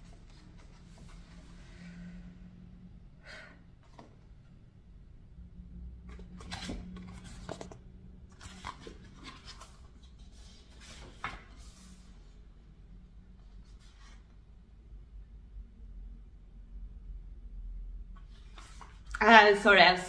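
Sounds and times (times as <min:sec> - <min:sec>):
faint room hum: 0:00.0 - 0:20.0
paper pages turning: 0:06.1 - 0:11.9, 0:18.3 - 0:19.2.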